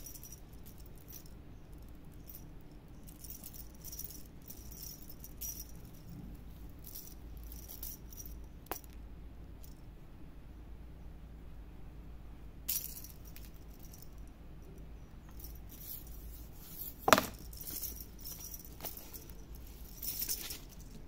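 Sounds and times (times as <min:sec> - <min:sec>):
cat toy jingling and rattling: 0:00.0 - 0:08.9, 0:12.7 - 0:21.0.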